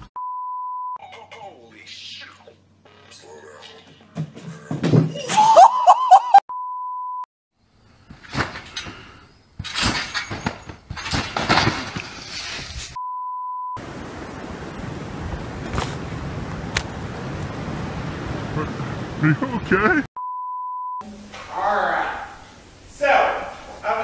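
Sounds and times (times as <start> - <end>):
censor beep: 0.2 - 1.0, 6.5 - 7.3, 13.0 - 13.8, 20.2 - 21.3
person crying out: 5.2 - 6.4
trampoline bouncing: 8.0 - 12.8
chair crash: 8.1 - 12.8.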